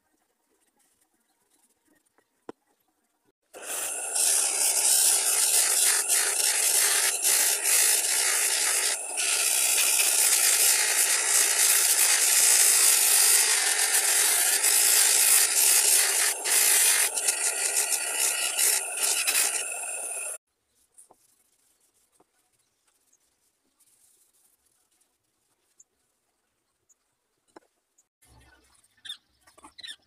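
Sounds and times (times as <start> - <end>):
buffing wheel hissing against blade: 3.6 - 20.4
electric motor running: 3.6 - 20.4.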